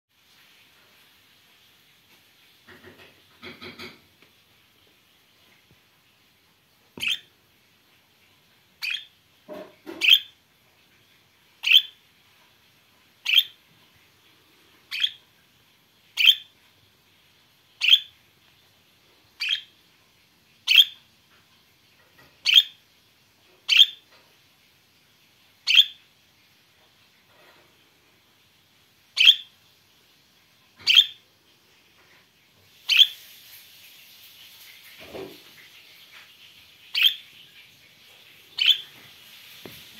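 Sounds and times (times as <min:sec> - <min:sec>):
budgerigar chirping: 0:07.0 - 0:07.3, 0:08.8 - 0:09.1, 0:09.9 - 0:10.4, 0:11.6 - 0:12.0, 0:13.2 - 0:13.6, 0:14.9 - 0:15.2, 0:16.2 - 0:16.5, 0:17.8 - 0:18.2, 0:19.4 - 0:19.7, 0:20.6 - 0:21.0, 0:22.4 - 0:22.8, 0:23.7 - 0:24.0, 0:25.6 - 0:26.0, 0:29.2 - 0:29.5, 0:30.8 - 0:31.2, 0:32.9 - 0:33.2, 0:36.9 - 0:37.3, 0:38.6 - 0:38.9.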